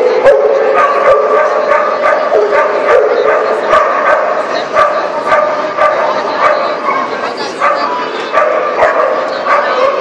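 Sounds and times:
dog barking: 0:00.0 - 0:10.0.

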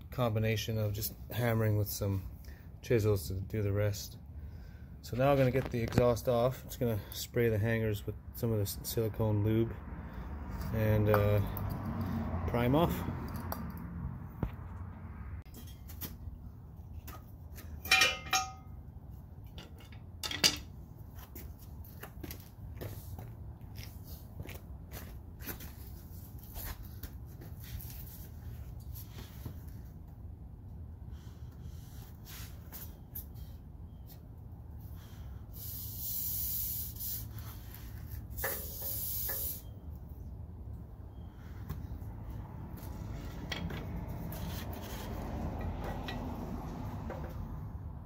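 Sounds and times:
metal exhaust clanking: 0:17.8 - 0:18.9
aerosol can spraying: 0:35.6 - 0:37.3, 0:38.4 - 0:39.6.

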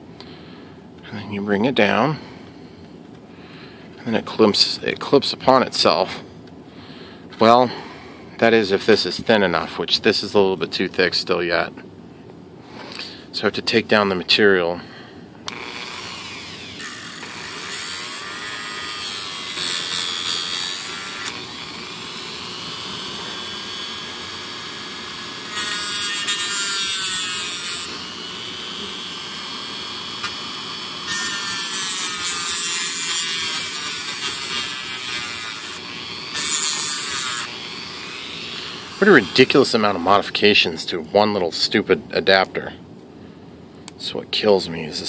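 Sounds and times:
handheld rotary tool running: 0:15.5 - 0:39.9
rotary tool grinding: 0:15.5 - 0:40.2.

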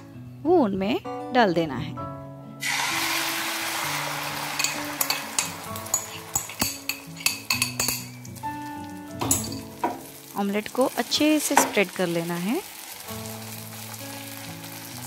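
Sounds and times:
background music: 0:00.0 - 0:15.0
egg sizzling in hot oil: 0:02.6 - 0:15.0
spoon and bowl clinking on pan: 0:04.4 - 0:10.2, 0:11.2 - 0:11.9.

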